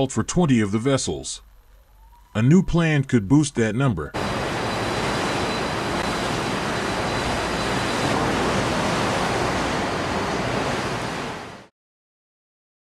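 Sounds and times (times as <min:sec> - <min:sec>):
wind: 0:04.1 - 0:11.7
waves breaking along ship hull: 0:04.2 - 0:11.7.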